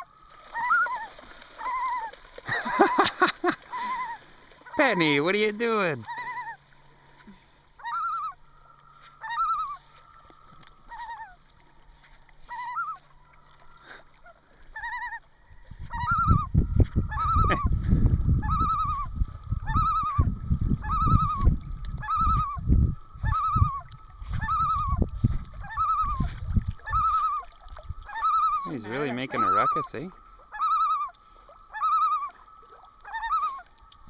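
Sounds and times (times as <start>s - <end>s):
loon tremolo call: 7.8s - 11.3s, 28.1s - 33.7s.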